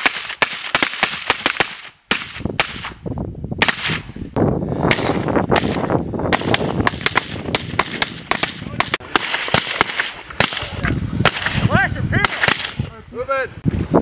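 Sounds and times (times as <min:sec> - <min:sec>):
suppressed rifles firing: 0:04.9 - 0:12.8.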